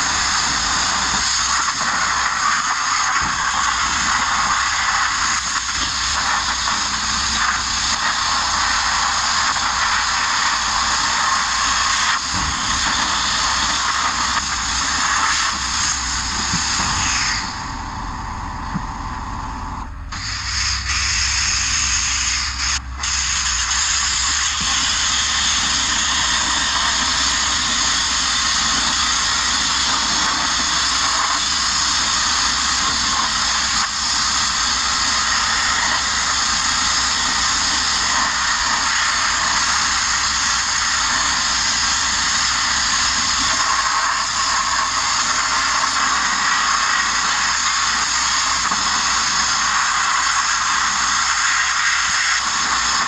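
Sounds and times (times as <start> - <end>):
media blaster hissing: 0.0 - 53.0.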